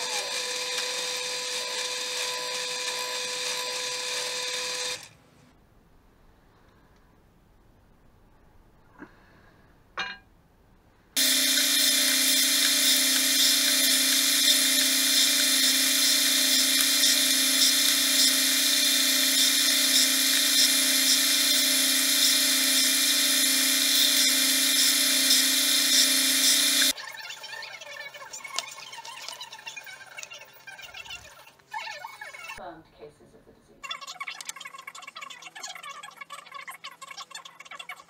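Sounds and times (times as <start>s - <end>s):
belt sander running: 0.0s - 5.1s, 11.2s - 26.9s.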